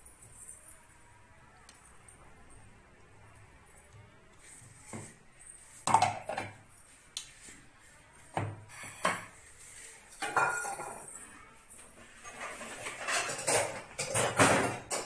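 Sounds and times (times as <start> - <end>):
metal jar knocks and clinks: 10.2 - 11.2.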